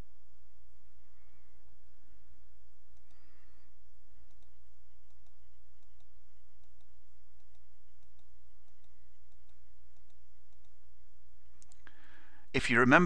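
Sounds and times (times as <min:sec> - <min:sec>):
low electrical hum: 0:00.0 - 0:13.0
computer mouse clicks: 0:02.9 - 0:03.6, 0:04.2 - 0:10.8.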